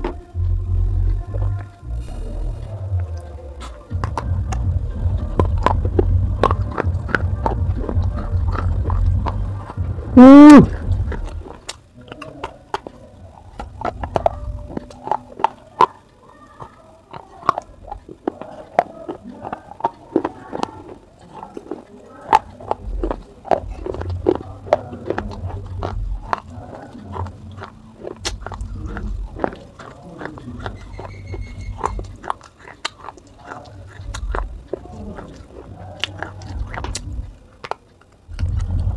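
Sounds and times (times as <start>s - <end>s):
low chewing rumble: 0.0s - 38.9s
brittle clay crunches: 16.6s - 38.9s.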